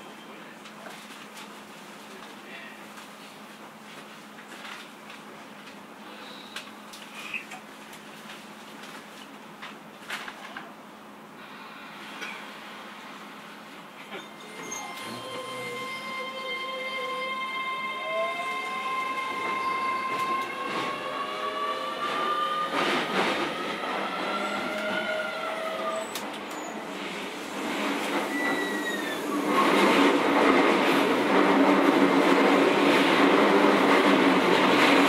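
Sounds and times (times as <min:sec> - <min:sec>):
electric train motor whine: 0:14.4 - 0:26.0
rail clicks: 0:18.5 - 0:35.0.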